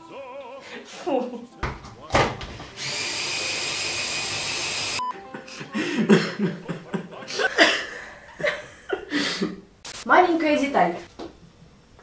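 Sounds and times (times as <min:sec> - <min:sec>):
immersion blender motor whining: 0:02.8 - 0:05.0
people laughing quietly: 0:05.2 - 0:09.6.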